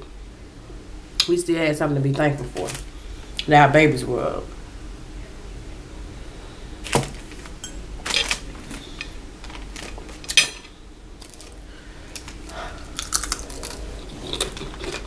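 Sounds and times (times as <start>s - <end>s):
crisp bacon being bitten: 11.2s - 15.0s.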